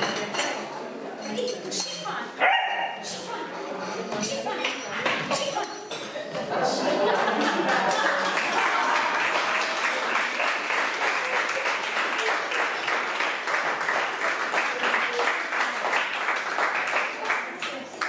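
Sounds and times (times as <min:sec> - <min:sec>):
audience applauding: 0:06.9 - 0:18.0.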